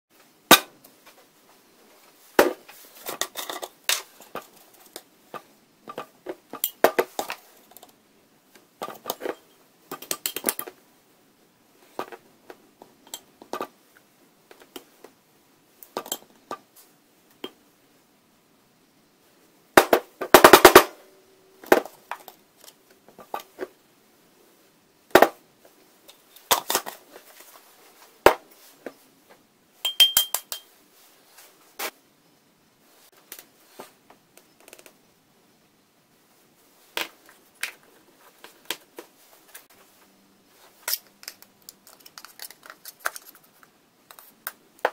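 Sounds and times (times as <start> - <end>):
kitchen containers clicking and tapping: 29.9 - 30.7.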